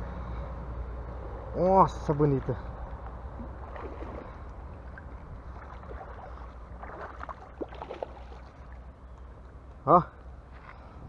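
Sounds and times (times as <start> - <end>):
fish splashing at water surface: 3.4 - 8.9.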